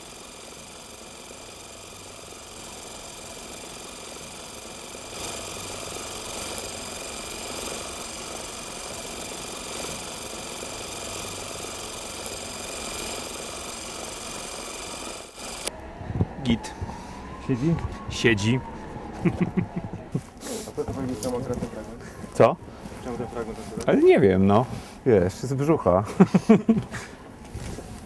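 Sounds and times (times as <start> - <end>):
cine camera motor whirring: 0.0 - 15.9.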